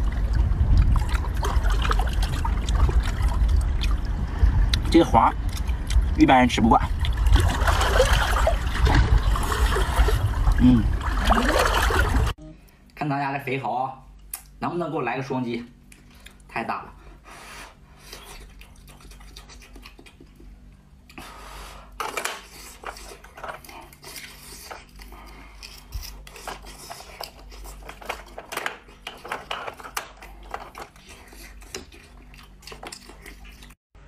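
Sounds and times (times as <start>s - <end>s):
knife scraping oyster shell: 22.3s - 28.0s.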